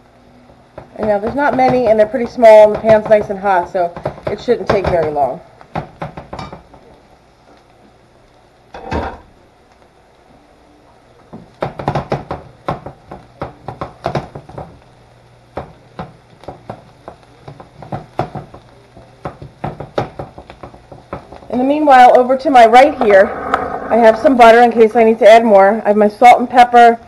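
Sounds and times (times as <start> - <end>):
pan knocking on glass cooktop: 0.8 - 6.8, 11.4 - 14.8, 15.6 - 18.6, 19.2 - 21.5.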